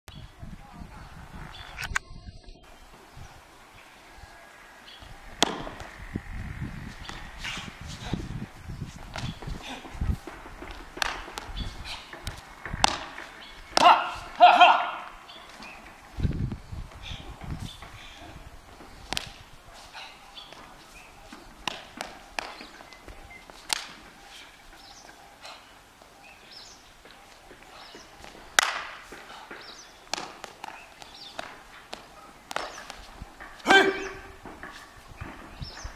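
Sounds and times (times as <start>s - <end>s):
feet landing stamps: 5.4s - 5.9s, 6.8s - 25.1s, 27.0s - 35.9s
hand strikes slapping: 19.1s - 19.4s, 21.6s - 22.6s, 23.7s - 24.0s, 28.6s - 29.0s, 30.1s - 33.0s.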